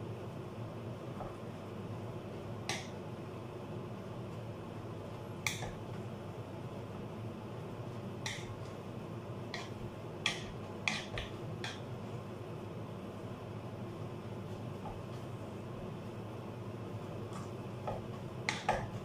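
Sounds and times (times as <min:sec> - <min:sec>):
steady low hum: 0:00.0 - 0:19.0
potato masher clacking against pot: 0:09.6 - 0:11.8.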